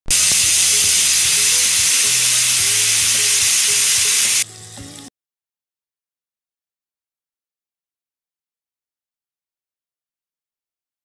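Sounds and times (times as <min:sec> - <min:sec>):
food sizzling in hot oil: 0:00.1 - 0:05.1.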